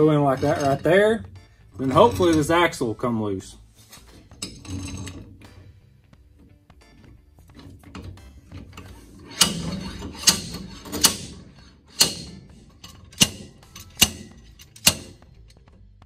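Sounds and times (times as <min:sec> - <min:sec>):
slide hammer metal blows: 0:07.8 - 0:15.4.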